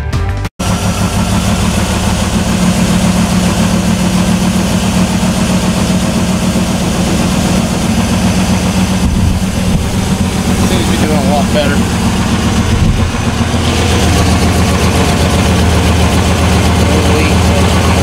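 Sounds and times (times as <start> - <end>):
car engine idling: 0.6 - 18.0.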